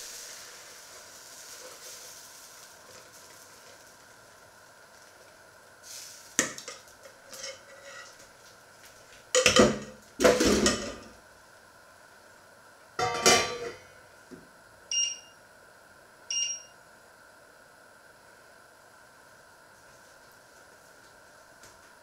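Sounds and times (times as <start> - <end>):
metal cookware clattering: 13.0 - 13.8
hob touch control beeps: 14.9 - 15.4, 16.3 - 16.7.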